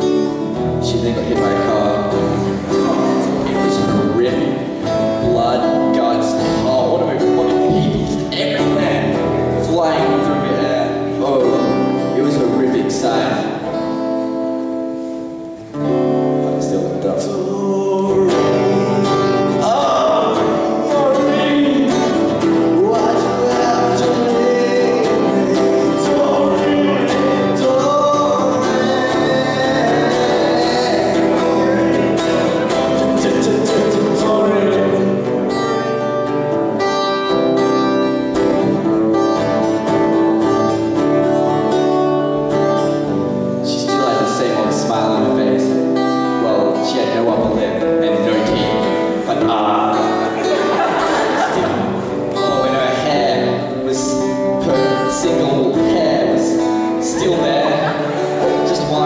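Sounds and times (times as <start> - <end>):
acoustic guitar strumming: 0.0 - 59.0
person singing: 16.8 - 37.2, 37.8 - 59.0.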